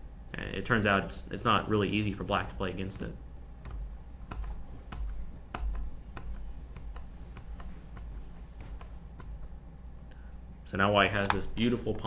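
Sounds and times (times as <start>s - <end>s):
computer keyboard keys clicking: 3.0s - 9.5s.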